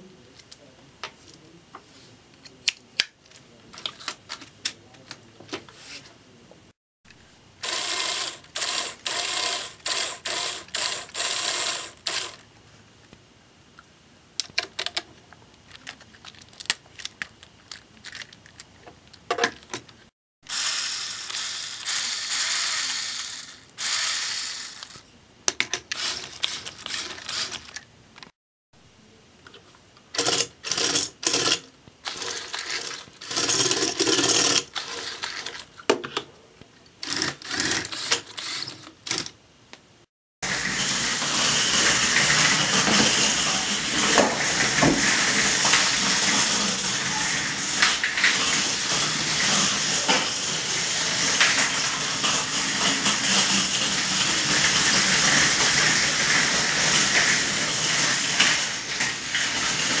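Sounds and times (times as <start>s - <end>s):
toy cars whirring on floor: 7.6s - 12.4s, 20.5s - 25.1s, 25.7s - 28.3s, 30.1s - 35.8s, 37.0s - 39.4s, 40.4s - 60.0s
toy cars knocking: 19.3s - 28.3s.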